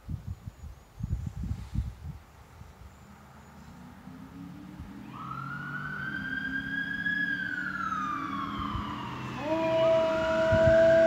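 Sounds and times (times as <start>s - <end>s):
police siren wailing: 4.4s - 11.0s
dog howling: 9.2s - 11.0s.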